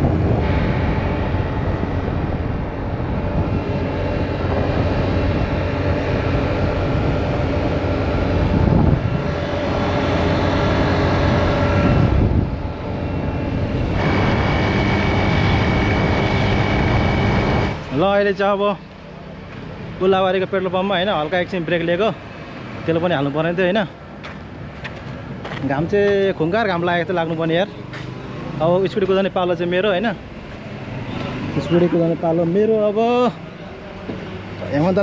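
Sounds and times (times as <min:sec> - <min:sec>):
steady high tone: 0:00.0 - 0:22.3
rush of air and road noise: 0:00.0 - 0:35.0.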